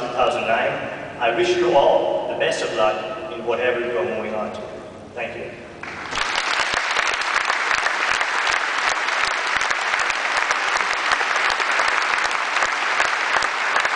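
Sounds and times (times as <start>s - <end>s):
audience applauding: 5.8s - 13.9s.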